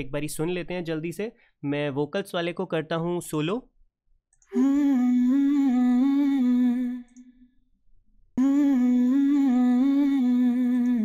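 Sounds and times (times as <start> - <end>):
person singing long notes: 4.5 - 7.3, 8.4 - 11.0.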